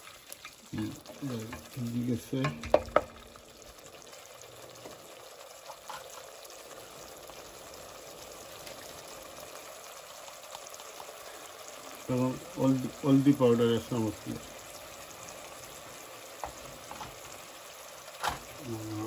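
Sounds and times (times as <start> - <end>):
onions sizzling in oil: 0.0 - 19.0
wooden spoon knocking on pot: 2.4 - 3.2.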